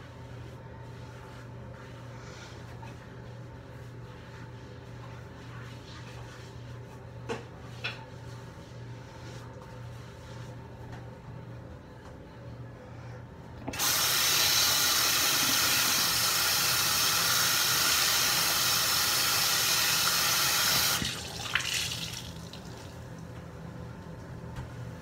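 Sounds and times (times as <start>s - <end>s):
water running into sink: 13.7s - 23.0s
dripping and splashing: 20.9s - 23.0s.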